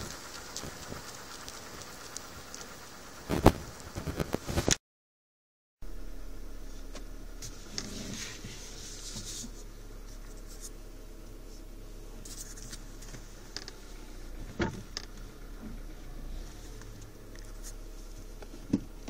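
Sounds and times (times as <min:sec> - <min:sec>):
steady low hum: 0:00.0 - 0:04.7, 0:05.8 - 0:19.0.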